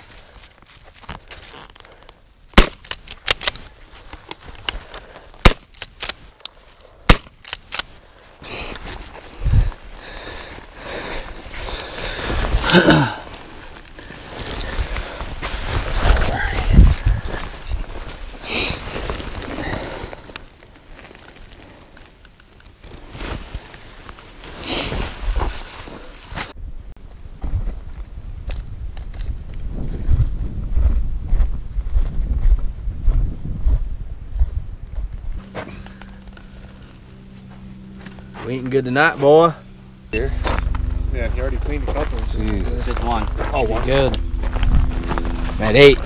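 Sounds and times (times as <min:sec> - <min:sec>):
footsteps on dry ground: 0:00.0 - 0:01.7, 0:02.6 - 0:21.8, 0:27.0 - 0:46.0
shotgun shots: 0:02.6 - 0:03.4, 0:07.1 - 0:07.4
brush and clothing rustling: 0:13.3 - 0:21.7, 0:22.9 - 0:26.6.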